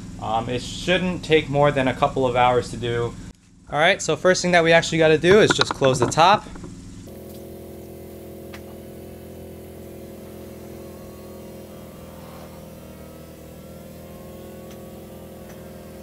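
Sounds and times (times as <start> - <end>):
soft top motor humming: 5.3 - 16.0.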